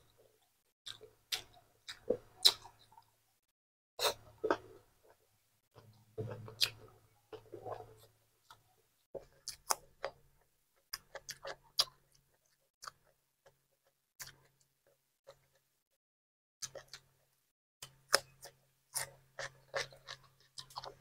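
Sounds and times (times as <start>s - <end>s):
man chewing cucumber: 0.8s - 3.1s, 5.8s - 15.6s, 16.6s - 17.1s, 17.8s - 21.0s.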